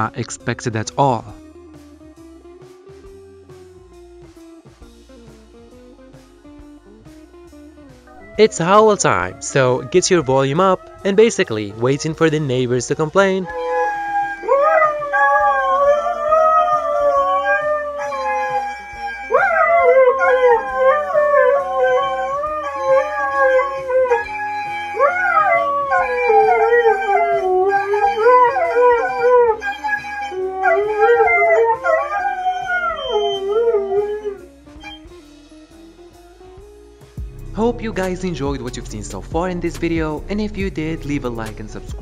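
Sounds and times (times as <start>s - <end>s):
dogs howling: 8.1s - 12.2s, 13.4s - 35.1s.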